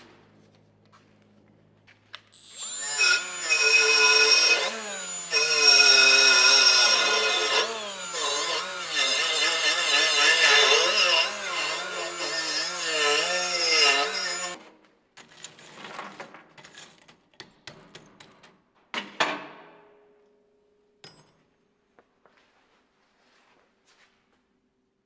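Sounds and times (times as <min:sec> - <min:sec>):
die grinder grinding steel: 0:02.4 - 0:14.6.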